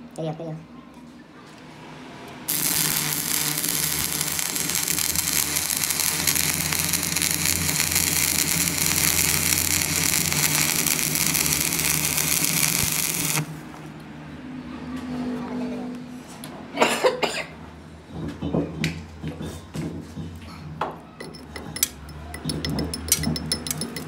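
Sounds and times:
arc welding crackling hiss: 0:02.5 - 0:13.7.

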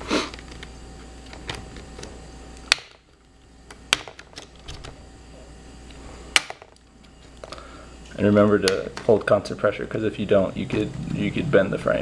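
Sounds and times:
plastic clips snapping: 0:02.6 - 0:03.0.

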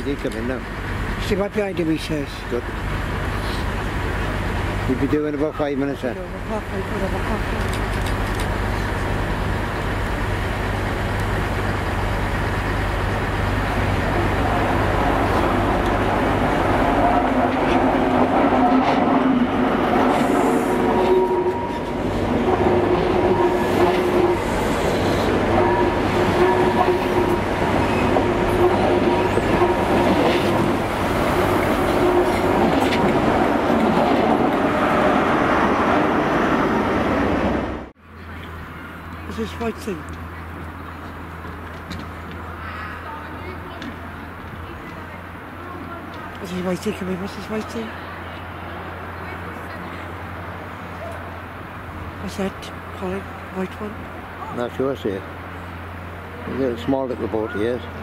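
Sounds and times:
diesel train engines: 0:00.0 - 0:58.0
wheels squealing: 0:12.0 - 0:35.6.

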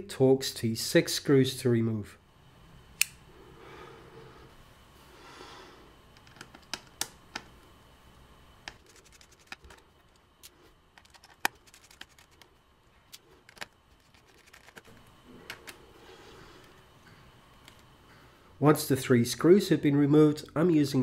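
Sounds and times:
tiny screws being handled: 0:08.7 - 0:15.8.

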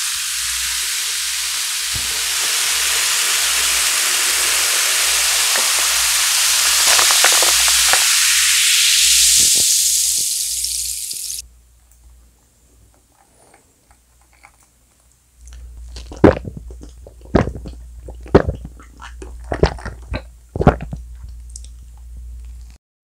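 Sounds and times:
gulping fizzy drink: 0:02.0 - 0:11.0, 0:15.5 - 0:21.8.

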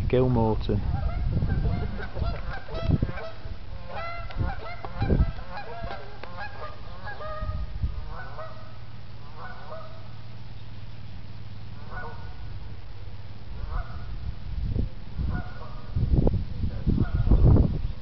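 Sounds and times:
geese honking: 0:00.8 - 0:10.2, 0:11.7 - 0:12.8, 0:13.5 - 0:14.2, 0:15.2 - 0:16.0, 0:16.7 - 0:17.6.

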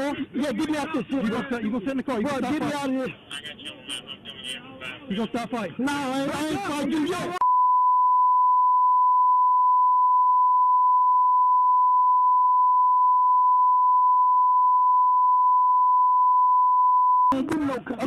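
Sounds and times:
steady beep tone: 0:07.4 - 0:17.4.

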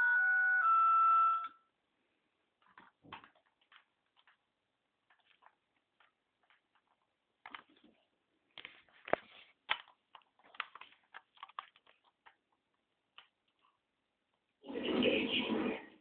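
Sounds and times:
toy electronic tones: 0:00.0 - 0:01.6
clicks and rustles of handling: 0:02.5 - 0:14.4.

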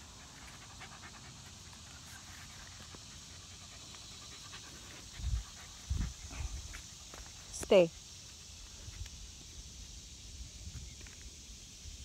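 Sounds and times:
dog panting: 0:00.0 - 0:07.2.

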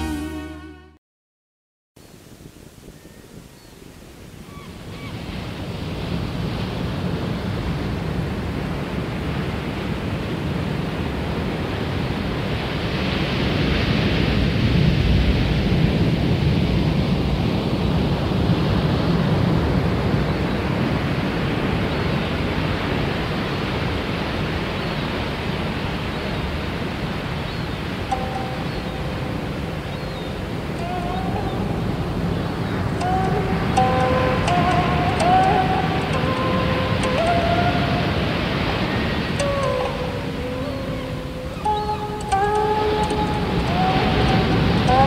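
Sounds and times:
wind: 0:00.0 - 0:00.9, 0:02.0 - 0:45.0
sea rushing: 0:02.1 - 0:45.0.

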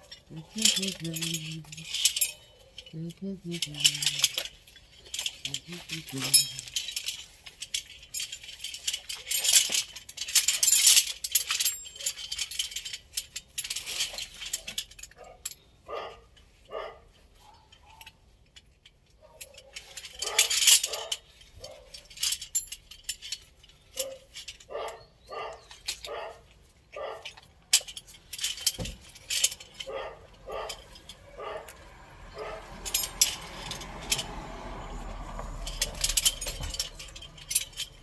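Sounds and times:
harness buckles jangling: 0:00.0 - 0:38.0
dog barking: 0:15.2 - 0:18.1, 0:19.2 - 0:22.0, 0:24.0 - 0:27.4, 0:29.8 - 0:32.7.

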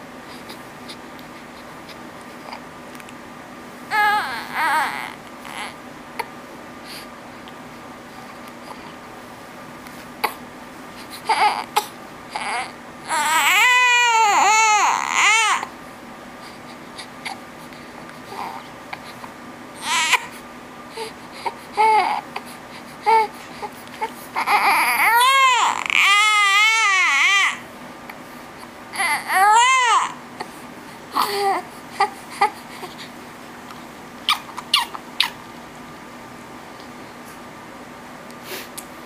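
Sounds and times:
newborn baby crying: 0:03.9 - 0:06.3, 0:11.2 - 0:15.8, 0:18.3 - 0:19.2, 0:19.8 - 0:20.4, 0:21.0 - 0:27.7, 0:28.9 - 0:30.5, 0:31.1 - 0:33.1, 0:34.2 - 0:35.4.

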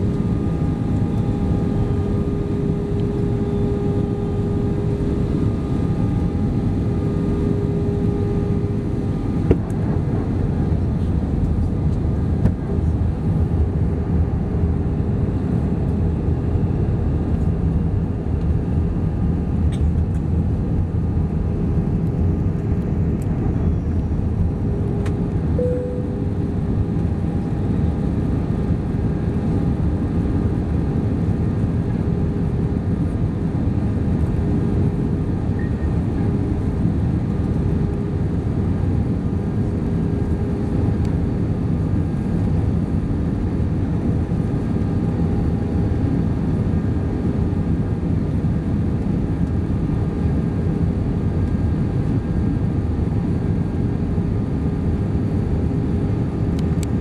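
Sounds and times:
steady hum: 0:00.0 - 0:13.5, 0:21.3 - 0:42.9
engine and airflow rush: 0:00.0 - 0:57.0.

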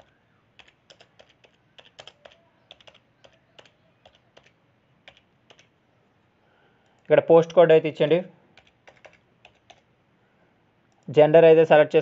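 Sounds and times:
keyboard key clicks: 0:05.1 - 0:05.7.

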